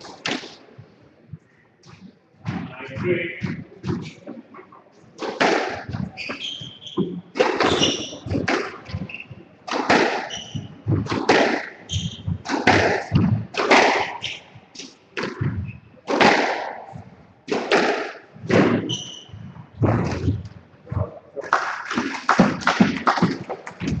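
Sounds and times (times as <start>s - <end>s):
squash ball hitting rackets and walls: 2.4s - 4.2s, 5.2s - 24.0s
shoes squeaking on wooden floor: 5.8s - 9.5s, 10.1s - 13.0s, 18.5s - 21.5s.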